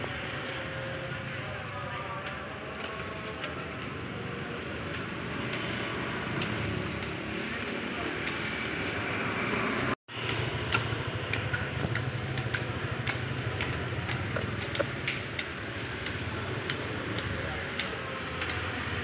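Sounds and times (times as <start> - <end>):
street hum: 0.0 - 19.0.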